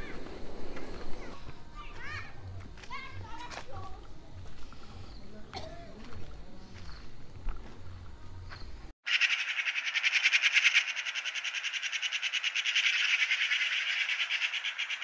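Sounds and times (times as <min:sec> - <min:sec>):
insect trilling: 0:09.1 - 0:15.0.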